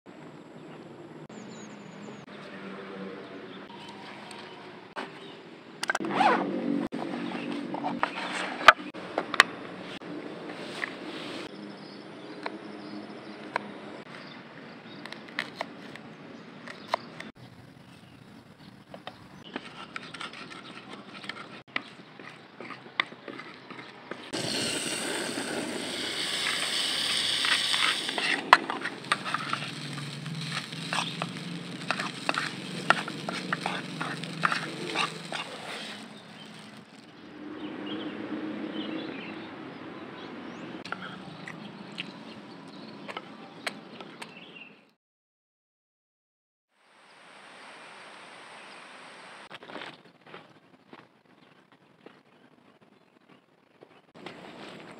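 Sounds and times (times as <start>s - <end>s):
sizzling in a pan: 24.4s - 37.1s
spoon scraping a plate: 27.4s - 36.8s.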